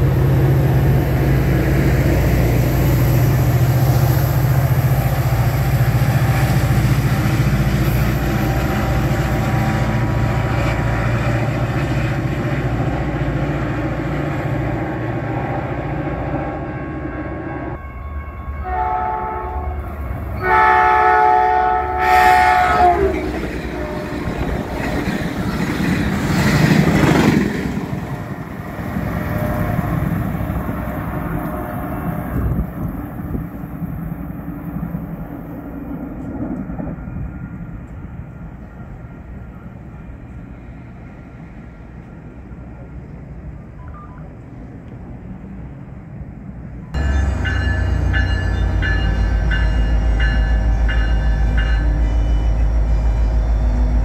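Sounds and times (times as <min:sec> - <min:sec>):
train rumbling past: 0:00.0 - 0:54.0
multi-tone train horn blasts: 0:07.8 - 0:10.4, 0:16.2 - 0:25.0, 0:29.1 - 0:32.6.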